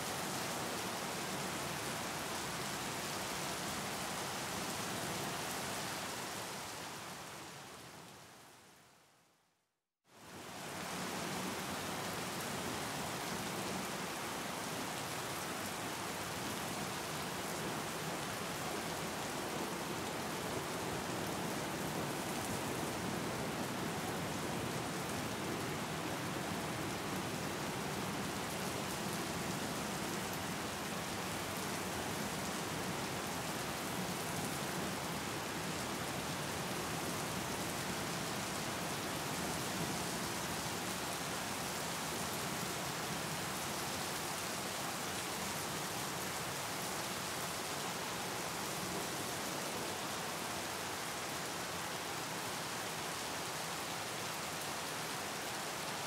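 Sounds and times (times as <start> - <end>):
steady rain: 0.0 - 9.4, 10.1 - 56.0.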